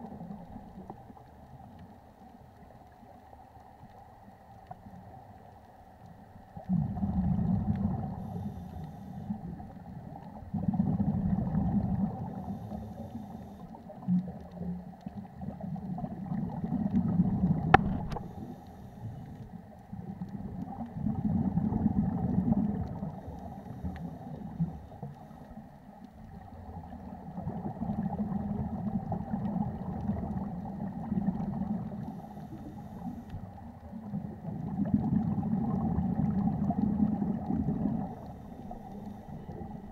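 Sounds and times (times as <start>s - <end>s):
underwater bubbles burbling: 0.0s - 39.9s.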